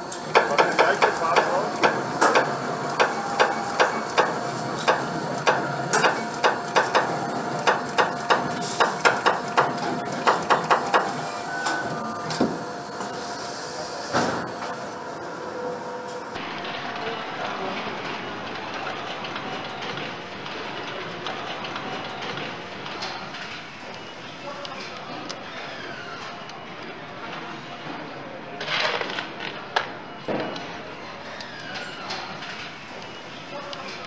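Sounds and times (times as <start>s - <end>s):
steady factory hum: 0.0s - 34.0s
marking machine metallic strikes: 0.3s - 11.8s.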